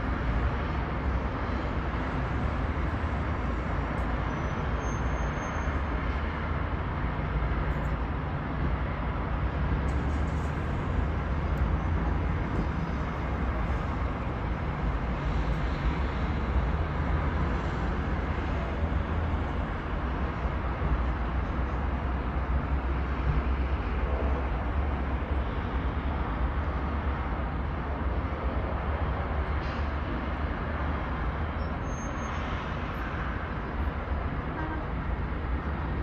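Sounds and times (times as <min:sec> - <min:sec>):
city traffic rumble: 0:00.0 - 0:36.0.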